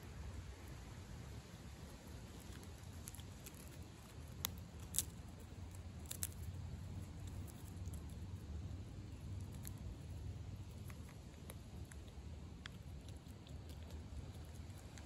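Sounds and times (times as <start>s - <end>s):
skunk chewing and crunching: 0.0s - 15.0s
nuts cracking: 2.4s - 8.2s.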